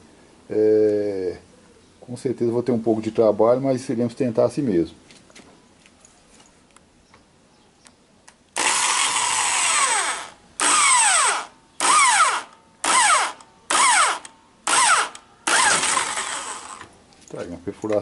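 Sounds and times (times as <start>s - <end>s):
electric drill whining: 8.6s - 16.9s.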